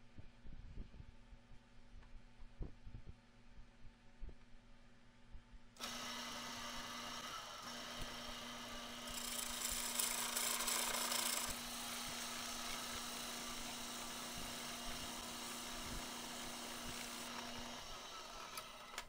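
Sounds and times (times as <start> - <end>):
wood lathe motor hum: 5.8 - 19.0
turning tool scraping wood: 7.9 - 17.7.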